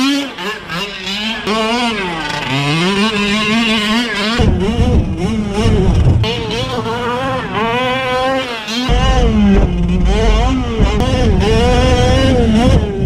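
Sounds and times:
two-stroke engine revving: 0.0s - 13.0s
heavy low rumble: 4.4s - 8.2s, 8.9s - 13.0s.

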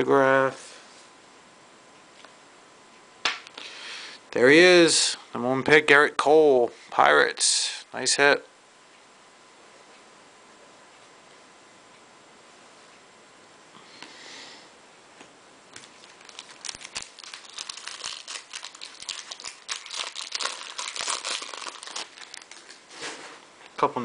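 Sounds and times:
foil wrapper crinkling and tearing: 15.7s - 22.9s.

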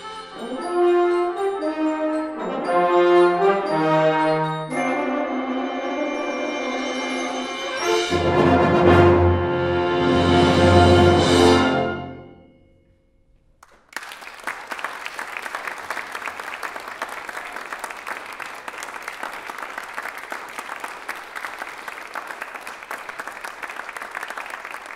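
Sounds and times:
brass choir chord: 7.8s - 12.4s
audience applause: 13.6s - 24.9s.

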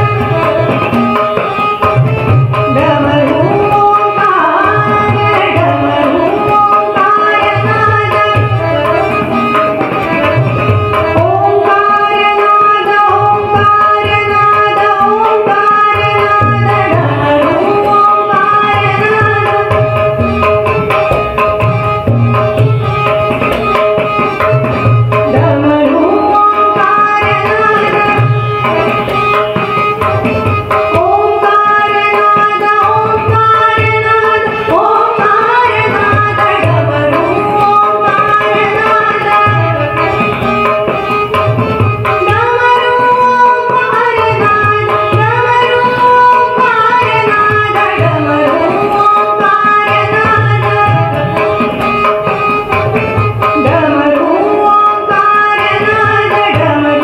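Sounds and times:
harmonium: 0.0s - 57.0s
tabla drumming: 0.0s - 57.0s
woman singing: 2.7s - 9.3s, 10.9s - 20.0s, 25.3s - 28.4s, 30.9s - 40.4s, 42.1s - 51.6s, 53.6s - 57.0s.

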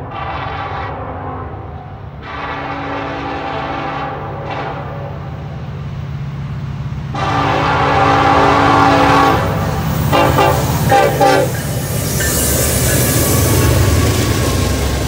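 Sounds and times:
locomotive air horn blasts: 0.0s - 5.1s, 7.2s - 11.7s
train wheels on track: 0.0s - 15.0s.

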